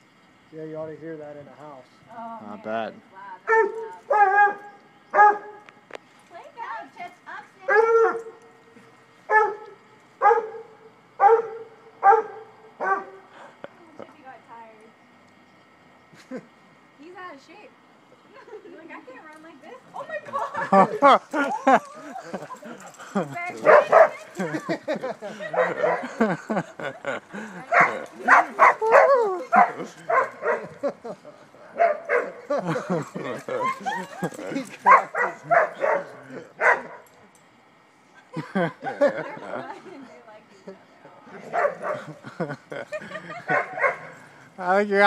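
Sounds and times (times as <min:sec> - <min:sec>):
dog barking: 0:03.5 - 0:05.6, 0:07.7 - 0:08.4, 0:09.3 - 0:13.2, 0:23.6 - 0:24.3, 0:25.4 - 0:26.2, 0:27.7 - 0:30.8, 0:31.7 - 0:32.5, 0:34.8 - 0:37.1, 0:41.4 - 0:42.2, 0:43.5 - 0:44.1.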